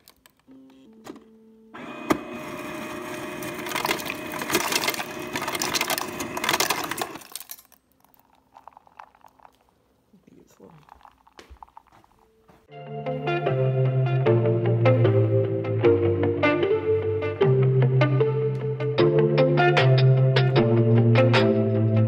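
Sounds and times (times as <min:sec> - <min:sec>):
ice dispenser motor hum: 0:00.1 - 0:09.5
ice cubes clattering into mug: 0:03.4 - 0:09.8, 0:10.6 - 0:12.1.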